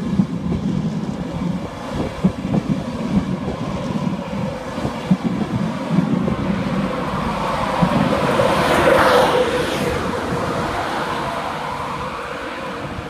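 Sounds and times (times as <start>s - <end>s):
train wheels rushing on rails: 0.0s - 13.0s.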